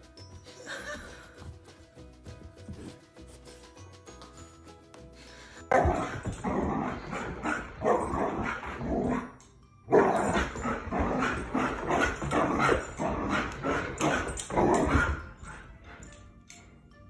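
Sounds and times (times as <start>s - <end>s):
dog barking: 7.4s - 9.2s.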